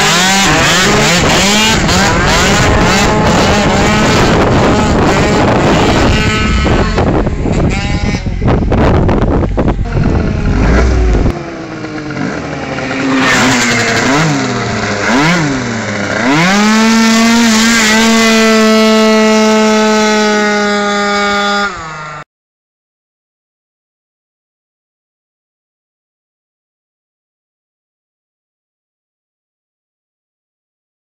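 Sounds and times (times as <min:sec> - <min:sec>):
scooter engine revving: 0:00.0 - 0:22.2
wind buffeting microphone: 0:00.6 - 0:12.9.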